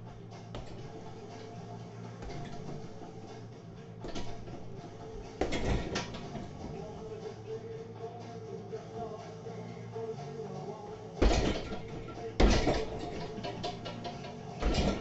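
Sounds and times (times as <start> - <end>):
kick thudding into heavy bag: 0.5 - 1.0, 5.4 - 6.8, 11.2 - 13.3, 14.6 - 15.0.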